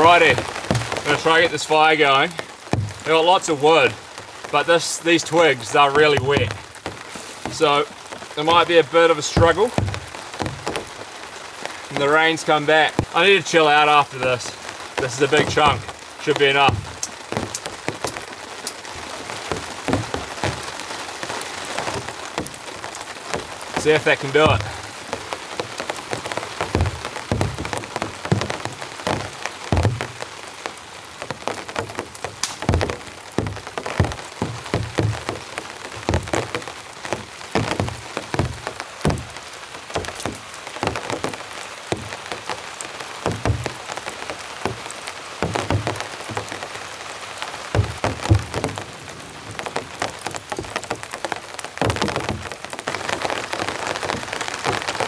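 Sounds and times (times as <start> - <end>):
heavy raindrops knocking: 0.0 - 55.0
rain hissing: 0.0 - 55.0
wet twigs crackling in fire: 0.0 - 55.0.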